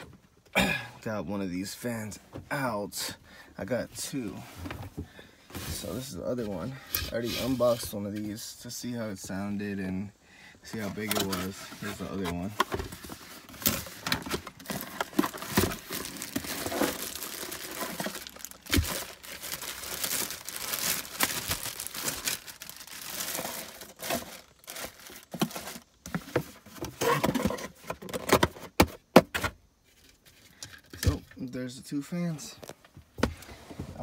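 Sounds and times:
cardboard box rustling: 10.7s - 28.6s
plastic bag crinkling: 12.9s - 25.9s.

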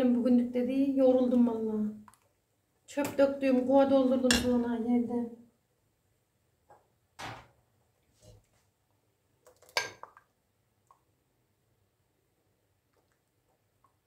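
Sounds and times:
kitchen things knocking and clattering: 7.2s - 7.6s, 9.5s - 10.2s.

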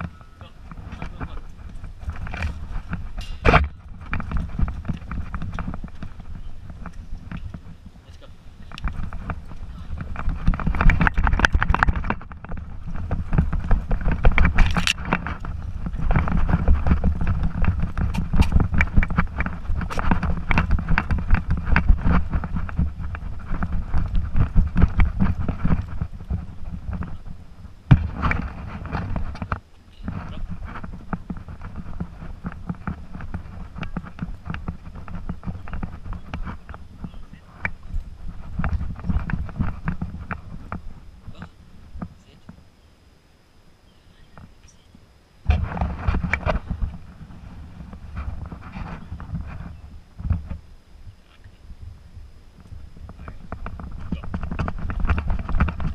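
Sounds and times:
rustle: 0.0s - 55.9s
wind and handling rumble: 0.0s - 55.9s
camera rig jostling: 8.6s - 27.3s.

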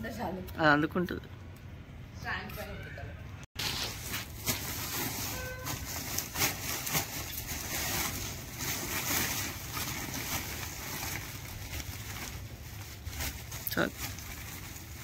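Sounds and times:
plastic sack rustling: 3.6s - 15.0s.

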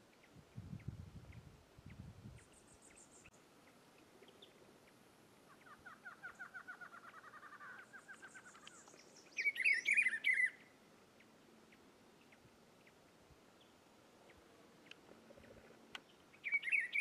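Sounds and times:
bird trilling and warbling: 5.5s - 10.7s, 16.4s - 17.0s.

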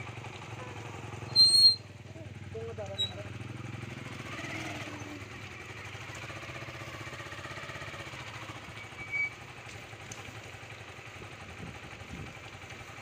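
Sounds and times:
motorcycle engine running: 0.0s - 13.0s
rain hiss on wet road: 5.5s - 13.0s.

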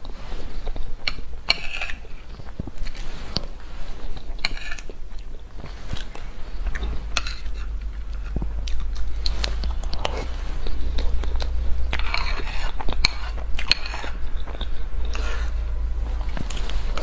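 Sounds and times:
wet chewing sounds: 0.0s - 17.0s
metal spoon scraping plate: 6.8s - 8.4s, 11.9s - 14.2s.

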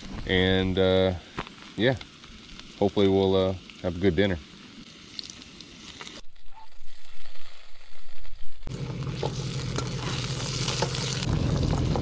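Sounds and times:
food sizzling in a skillet: 0.0s - 12.0s
spatula scraping a pan: 9.2s - 11.3s.

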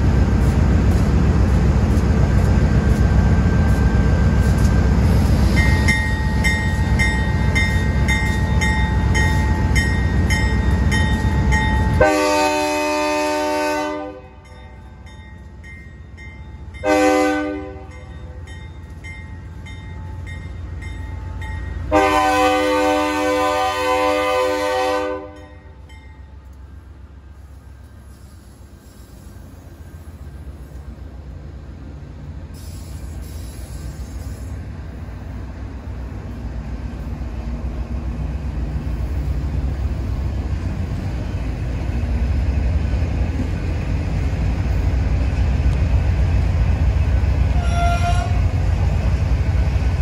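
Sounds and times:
heavy low train rumble: 0.0s - 50.0s
locomotive air horn blasts: 11.9s - 14.5s, 16.8s - 18.0s, 21.9s - 25.5s, 47.5s - 48.5s.

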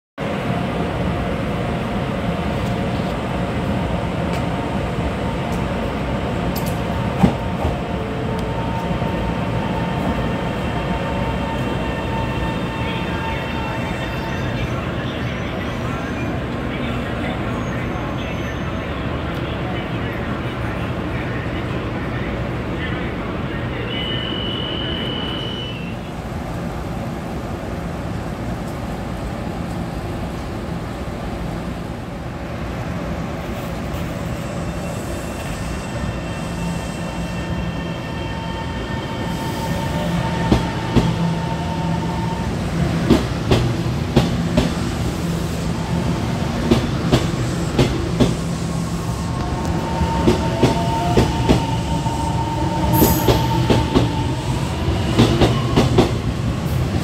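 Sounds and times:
train rumble: 25.0s - 57.0s
high wheel squeal: 34.3s - 42.5s, 48.6s - 54.4s.

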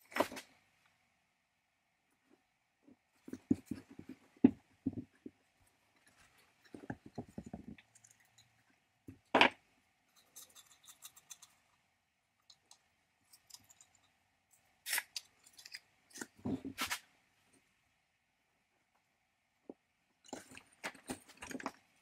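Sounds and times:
knocks and clatter on workbench: 3.3s - 5.4s, 6.7s - 7.8s
metal parts clicking and scraping: 10.1s - 11.6s, 13.3s - 14.1s.

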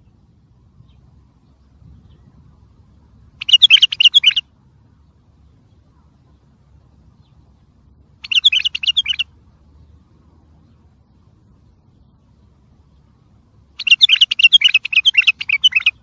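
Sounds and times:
faint low hum: 0.0s - 16.0s
bird singing warbled notes: 0.8s - 4.5s, 8.2s - 10.0s, 13.8s - 16.0s.

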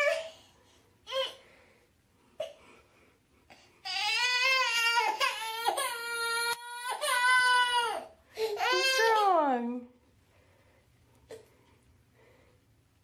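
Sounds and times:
toddler crying: 3.8s - 9.3s.

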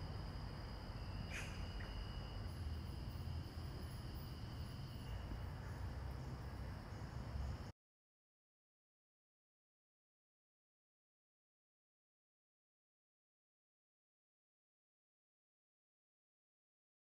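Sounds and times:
crickets trilling: 0.0s - 7.7s.

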